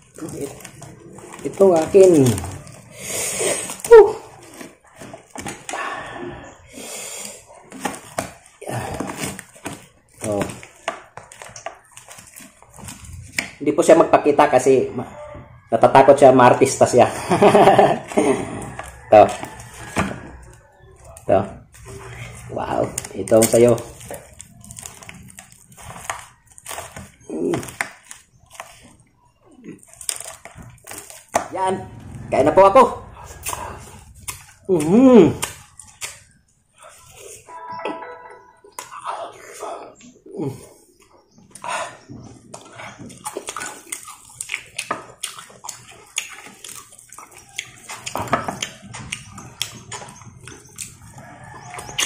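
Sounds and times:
fried skin crackling: 0.0 - 5.0, 21.7 - 29.0, 29.7 - 31.5
crispy food crunching: 0.0 - 5.7, 7.3 - 14.7, 16.6 - 31.6, 33.0 - 37.4, 42.4 - 52.0
chewing: 0.0 - 13.6, 17.6 - 32.3, 33.0 - 37.5, 39.3 - 52.0.

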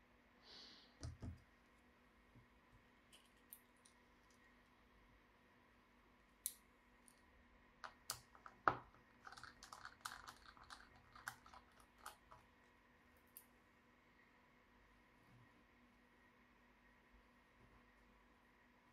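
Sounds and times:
laptop parts clicking and knocking: 7.8 - 12.5.

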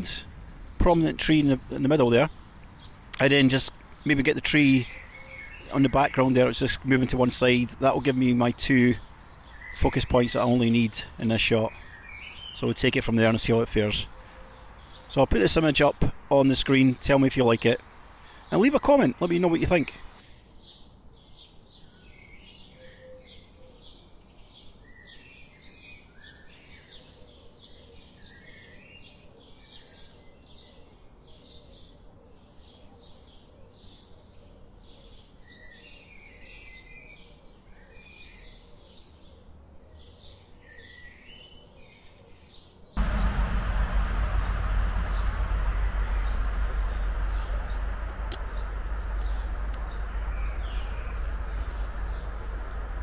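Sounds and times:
birds chirping and whistling: 43.0 - 53.0
loud low rushing noise: 43.0 - 53.0.

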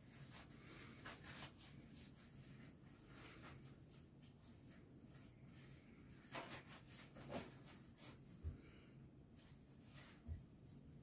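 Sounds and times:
tissue paper rustling and tearing: 0.0 - 8.2.

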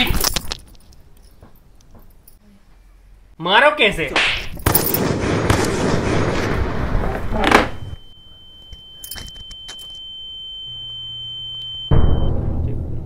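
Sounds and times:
high-pitched ringing tone: 7.7 - 12.4.

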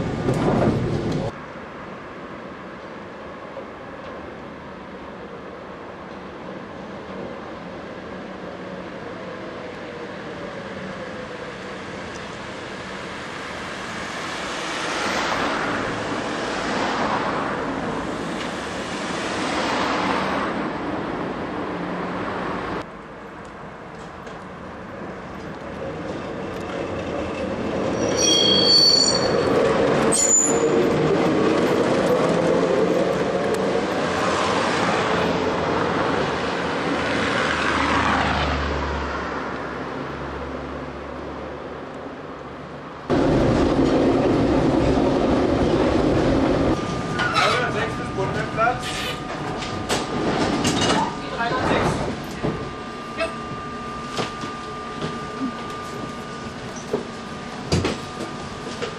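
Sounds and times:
tram rolling along track: 0.0 - 58.9
road traffic passing: 9.8 - 26.4, 29.4 - 58.9
high-pitched wheel squeal: 27.9 - 30.9, 48.8 - 49.3.

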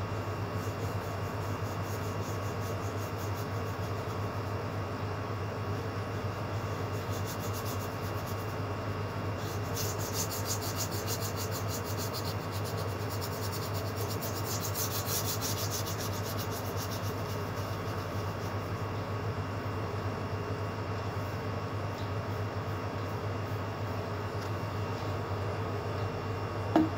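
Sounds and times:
steady low hum: 0.0 - 26.9
paintbrush stroking paper: 6.1 - 8.6, 9.4 - 18.7.

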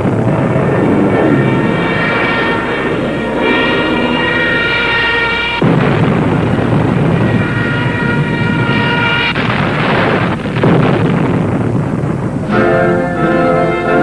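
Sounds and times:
aircraft and explosions rumble: 0.0 - 13.4
rushing blast: 0.0 - 14.0
faint orchestral music: 12.5 - 14.0.

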